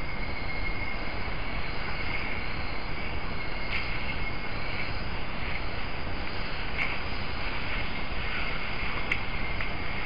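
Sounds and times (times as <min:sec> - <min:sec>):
high-pitched insect drone: 0:00.0 - 0:10.0
microphone hiss: 0:00.0 - 0:10.0.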